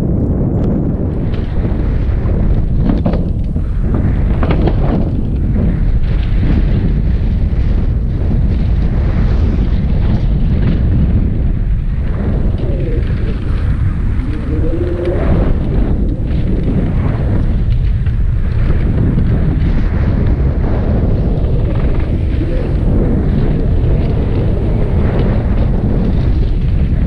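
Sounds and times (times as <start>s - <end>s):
bike rattling: 0.0s - 27.0s
wind buffeting camera: 0.0s - 27.0s
wavering whine: 12.0s - 17.2s.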